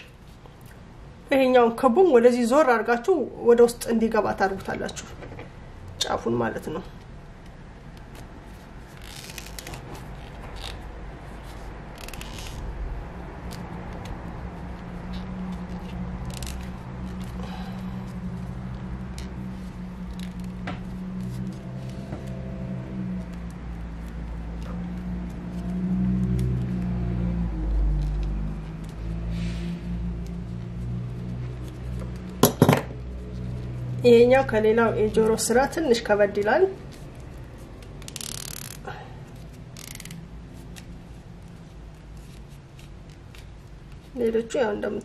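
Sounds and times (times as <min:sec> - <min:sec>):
leather rustling in fingers: 0:07.9 - 0:29.2, 0:30.2 - 0:32.4, 0:36.8 - 0:44.2.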